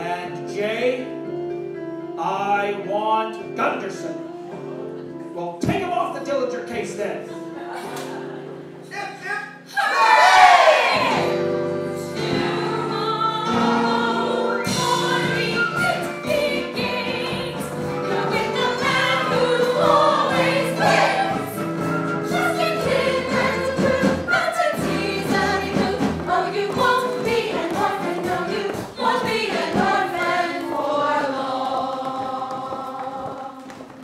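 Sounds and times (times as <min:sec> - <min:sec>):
ensemble cast singing: 0:09.7 - 0:34.0
instrumental accompaniment: 0:10.8 - 0:34.0.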